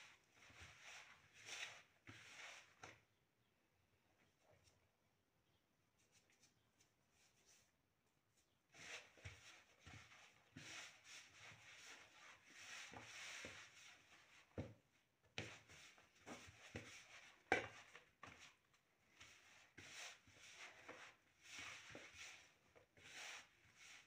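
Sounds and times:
hands kneading dough in bowl: 0:00.0 - 0:03.2, 0:08.4 - 0:24.0.

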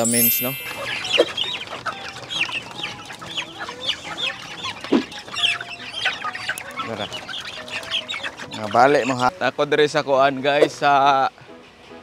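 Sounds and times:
hens calling: 0:00.1 - 0:09.3.

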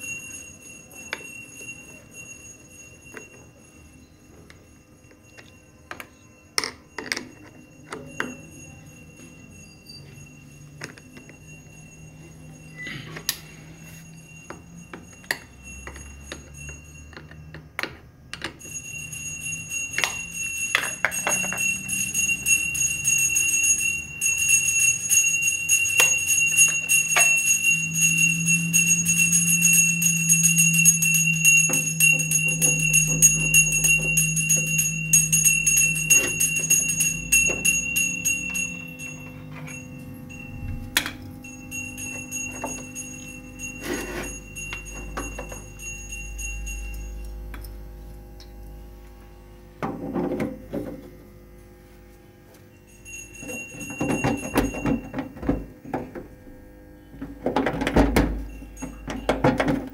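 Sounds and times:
high-pitched electronic tone: 0:27.2 - 0:49.4.

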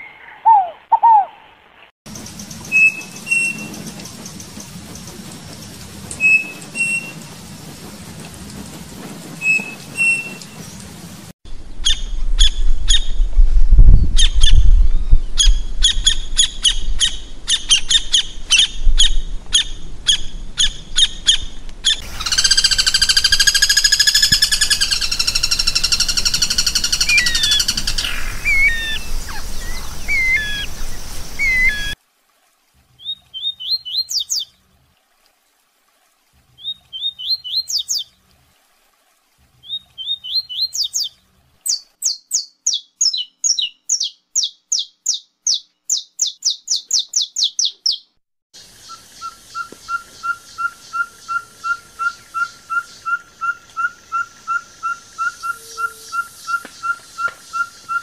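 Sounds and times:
bird sharp repeated calls: 0:21.9 - 0:30.7.

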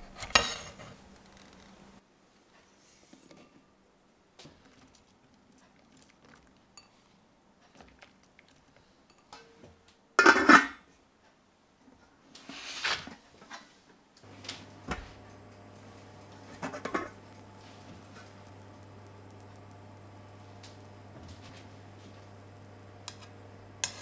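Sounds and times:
metal lid clanking onto pot: 0:10.2 - 0:10.8
low steady hum: 0:14.2 - 0:24.0
pot scraping: 0:14.3 - 0:22.4, 0:23.0 - 0:24.0.

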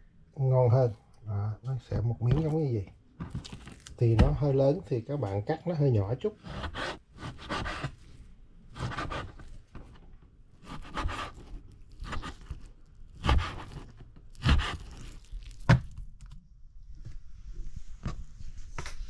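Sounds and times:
knife slicing meat on wooden board: 0:10.6 - 0:15.1.

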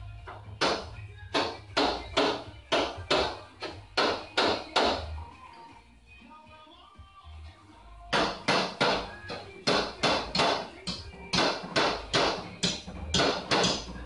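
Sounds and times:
tools tapping on sheet metal: 0:00.3 - 0:05.2, 0:08.1 - 0:14.0.

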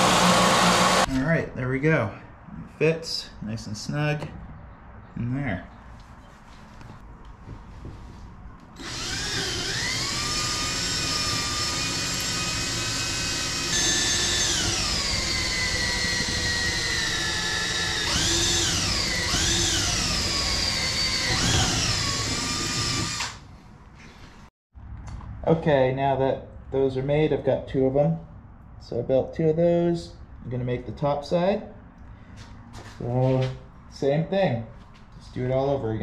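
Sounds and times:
cordless drill drilling metal: 0:00.0 - 0:01.1, 0:08.8 - 0:23.4.

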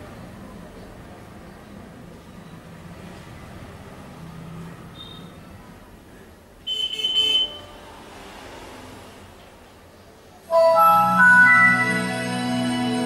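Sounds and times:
bright electronic tone: 0:10.5 - 0:13.0
layered chime: 0:10.5 - 0:13.0.

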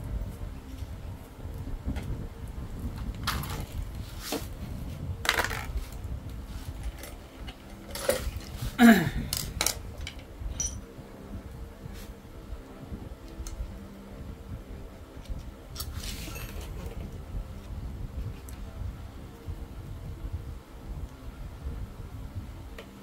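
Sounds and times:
metal parts clinking on tiled floor: 0:09.3 - 0:10.8.

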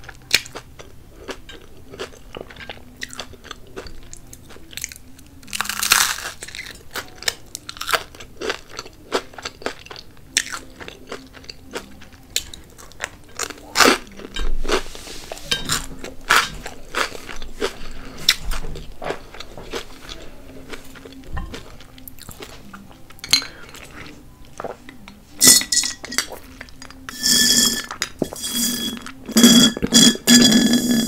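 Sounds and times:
chewing and mouth clicks: 0:15.7 - 0:25.2
glass bottle clinking: 0:25.4 - 0:26.4, 0:27.1 - 0:31.0.

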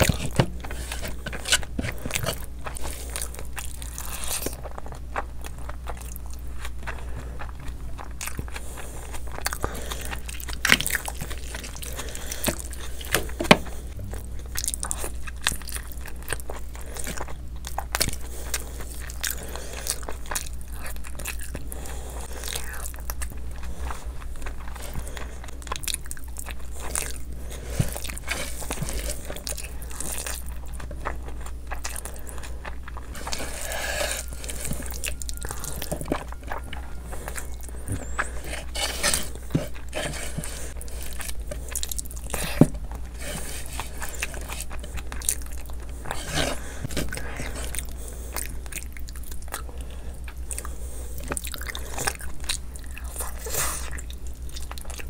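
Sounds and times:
wet chewing and smacking: 0:00.0 - 0:55.0
low hum: 0:11.8 - 0:16.2, 0:30.9 - 0:51.1.

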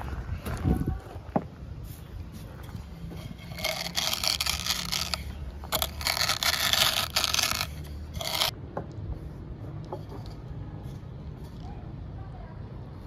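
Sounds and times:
rolling pin crushing seeds on stone: 0:03.1 - 0:08.5.

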